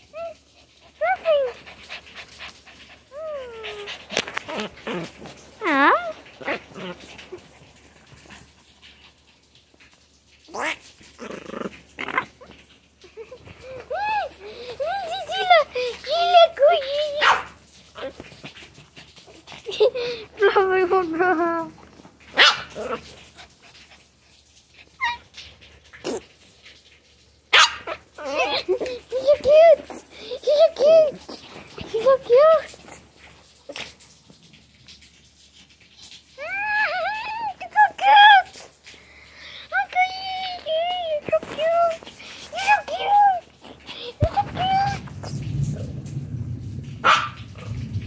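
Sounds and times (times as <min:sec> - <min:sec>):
dog growling: 0:03.2 - 0:08.6, 0:10.5 - 0:14.9, 0:22.6 - 0:23.4, 0:41.3 - 0:48.0
dogs yipping: 0:12.1 - 0:18.2, 0:22.3 - 0:24.0, 0:24.8 - 0:25.5, 0:27.5 - 0:31.4, 0:47.0 - 0:47.7
dog whining: 0:27.6 - 0:30.0.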